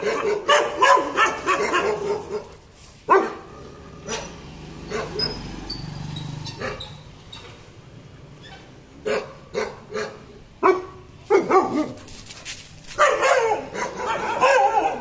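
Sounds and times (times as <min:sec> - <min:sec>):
dog barking aggressively: 0:00.0 - 0:05.5, 0:06.5 - 0:07.0, 0:09.0 - 0:12.2, 0:12.9 - 0:15.0.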